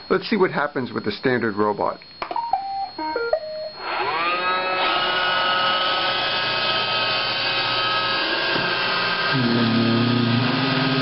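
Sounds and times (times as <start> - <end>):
robot vacuum beeping tune: 0.0 - 10.8
robot vacuum motor whine: 3.2 - 11.0.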